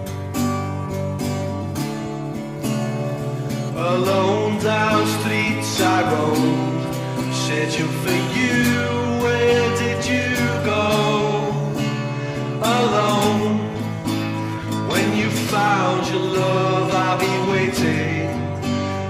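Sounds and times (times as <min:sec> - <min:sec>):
bass guitar: 0:00.0 - 0:19.0
electric guitars: 0:00.0 - 0:19.0
male lead vocal singing: 0:03.8 - 0:18.6.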